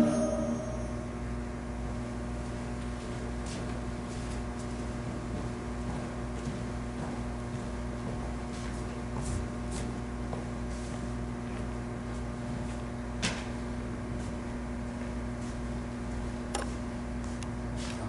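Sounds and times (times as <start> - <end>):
electrical hum: 0.0 - 18.0.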